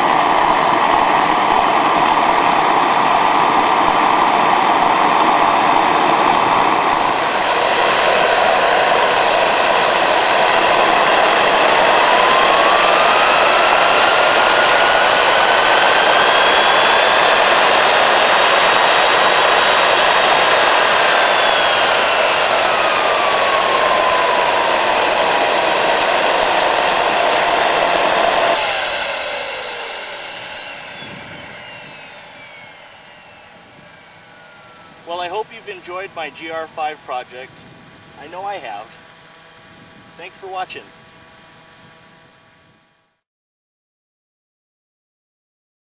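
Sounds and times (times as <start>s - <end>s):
gas turbine whining: 0.0s - 43.2s.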